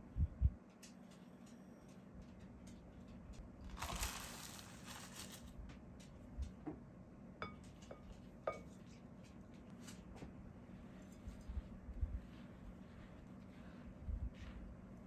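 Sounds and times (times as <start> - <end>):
oats poured into glass bowl: 3.8 - 5.4.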